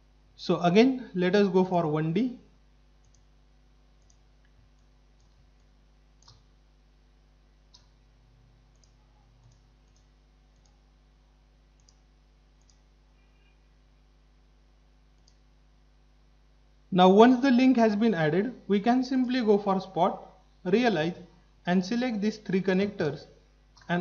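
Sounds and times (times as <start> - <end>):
low steady hum: 0.0 - 24.0
computer mouse clicks: 3.0 - 3.3, 4.0 - 6.5, 7.7 - 8.0, 8.7 - 10.8, 11.8 - 12.9, 15.1 - 15.4.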